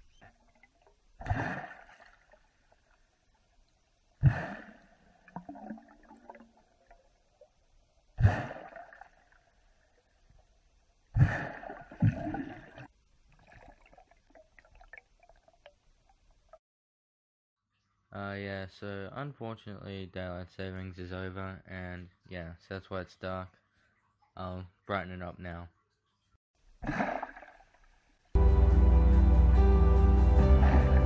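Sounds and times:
underwater air bubbling: 4.1 - 10.2, 11.1 - 15.8.

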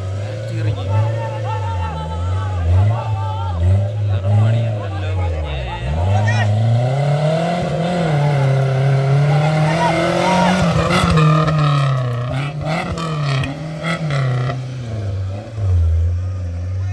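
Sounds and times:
engine revving hard: 0.0 - 16.4.

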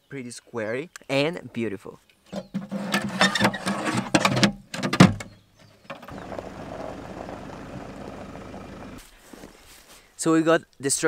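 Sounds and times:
pickup truck engine running: 6.1 - 9.0.

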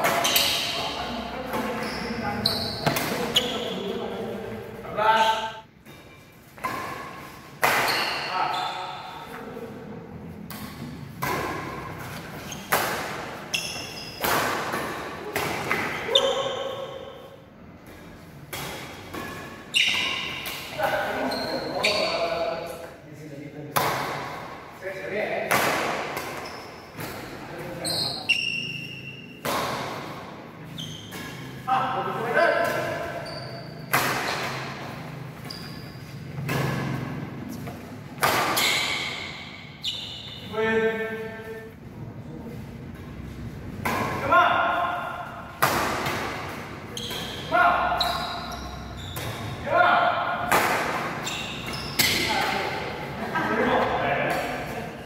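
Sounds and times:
racket hitting shuttlecock: 0.0 - 1.7, 5.9 - 9.4, 10.5 - 17.0, 18.5 - 21.2, 23.7 - 24.6, 25.4 - 27.4, 29.4 - 30.4, 33.8 - 35.5, 36.4 - 39.8, 43.7 - 48.3, 49.1 - 53.0
badminton racket hitting shuttlecock: 0.0 - 1.8, 6.6 - 9.3, 33.8 - 35.4, 38.1 - 39.8, 50.2 - 52.9
shoe squeaks on court: 0.1 - 1.0, 1.6 - 3.9, 7.8 - 9.2, 12.4 - 12.8, 13.5 - 14.3, 19.7 - 20.4, 21.1 - 22.4, 26.4 - 26.9, 27.8 - 29.4, 30.6 - 31.6, 32.4 - 34.7, 35.4 - 36.3, 38.5 - 40.5, 46.9 - 49.6, 51.1 - 52.4.

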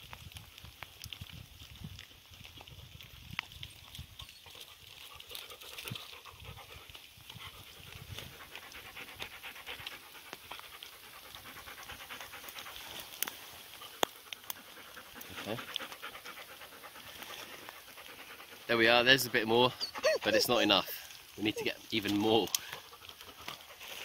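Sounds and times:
dog panting: 4.2 - 24.0.

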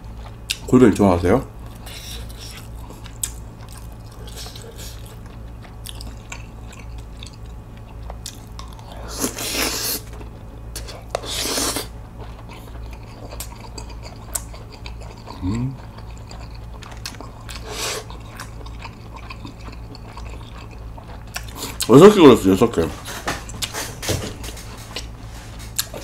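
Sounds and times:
wet chewing: 0.0 - 0.7, 1.6 - 26.0
slurping noodles: 9.0 - 10.1, 10.8 - 11.9, 17.6 - 18.2.

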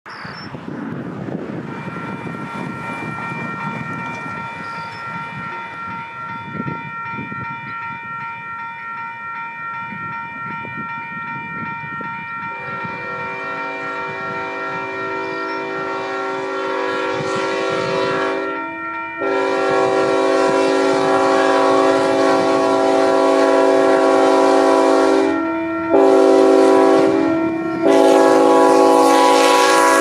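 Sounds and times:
crossing warning bell ringing: 1.3 - 30.0
distant train horn blast: 12.5 - 30.0.

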